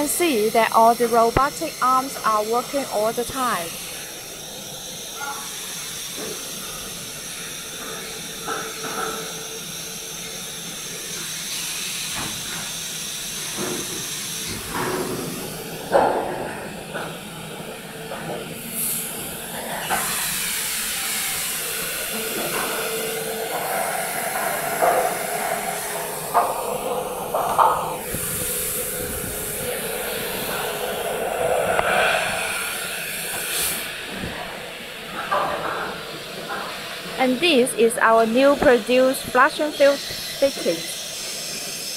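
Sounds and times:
machine hiss: 0.0 - 41.9.

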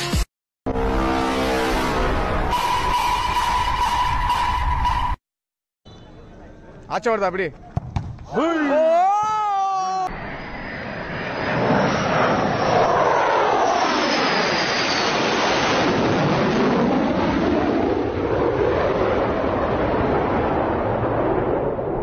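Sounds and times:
fighter jet roar passing overhead: 10.1 - 22.0.

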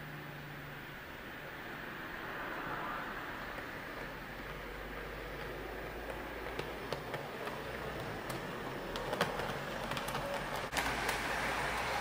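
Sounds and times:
model train running: 0.0 - 12.0
wheels clicking on rails: 2.8 - 12.0.

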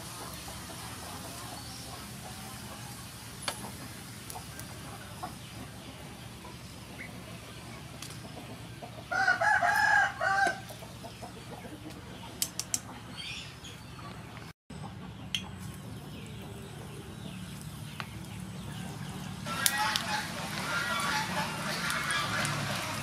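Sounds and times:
food deep-frying in oil: 0.0 - 10.5, 19.3 - 23.0
rooster crowing: 9.1 - 10.7, 19.4 - 22.9.

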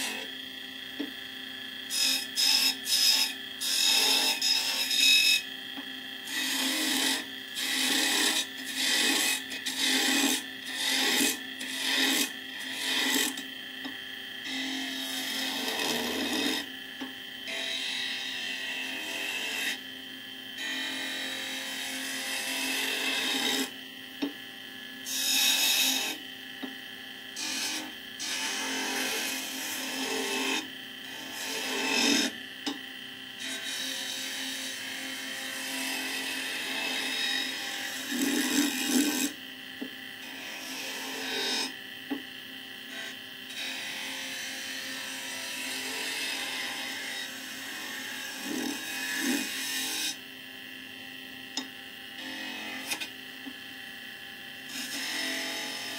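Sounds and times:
wood lathe humming: 0.0 - 1.1, 1.8 - 19.8, 20.5 - 24.3, 25.0 - 42.2, 42.9 - 50.2, 51.5 - 53.5, 54.6 - 55.9
scraper rasping on turning wood: 6.3 - 13.4, 14.6 - 16.6, 31.2 - 32.3, 36.8 - 39.3, 48.4 - 50.1.

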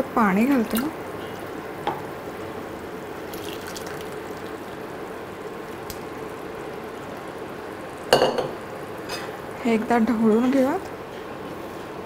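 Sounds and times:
wet pouring into a pan: 3.3 - 4.6.

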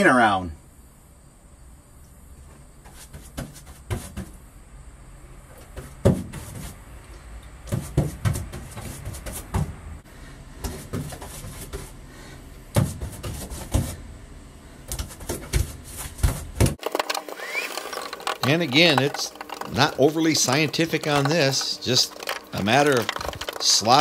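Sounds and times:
knocks and thumps: 14.9 - 24.0.

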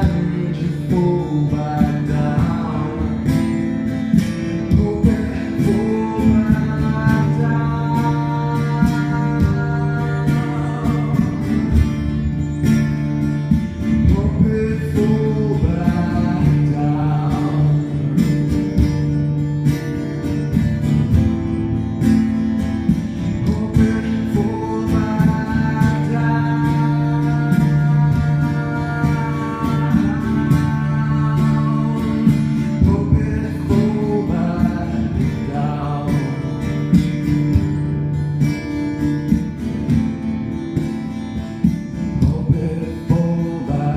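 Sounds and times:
man singing: 0.0 - 12.4, 13.7 - 19.0, 23.1 - 37.8, 41.7 - 43.9
acoustic guitar strummed: 0.0 - 43.9.

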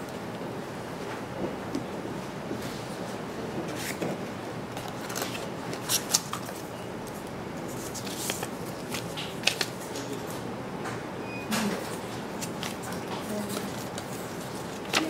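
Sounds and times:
paper rustling: 4.8 - 10.4, 12.1 - 15.0.

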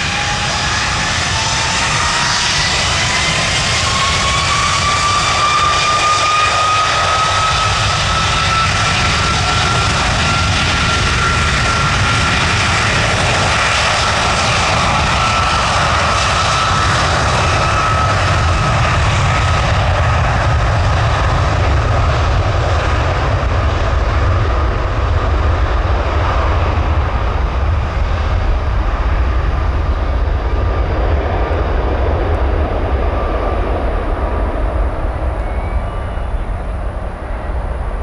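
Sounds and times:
faint engine whine: 0.0 - 38.0
jet airliner passing: 0.0 - 38.0
deep rumble: 7.1 - 38.0.

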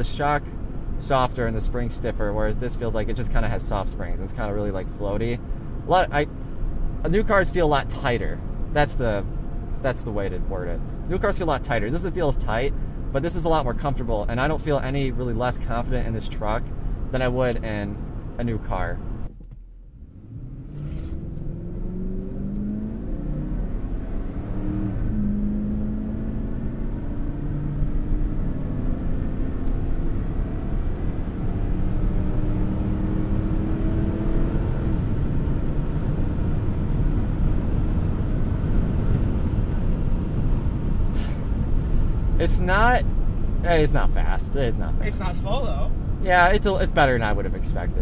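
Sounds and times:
engine accelerating at full throttle: 20.0 - 43.0.

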